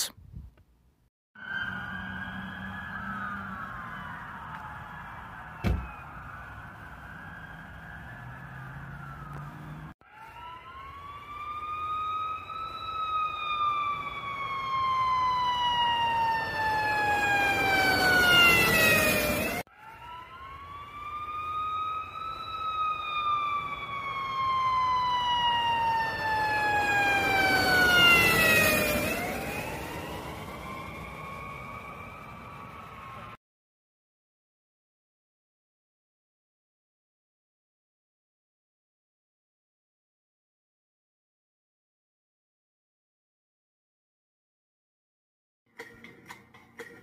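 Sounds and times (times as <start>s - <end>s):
siren winding up and down: 1.4s - 33.4s.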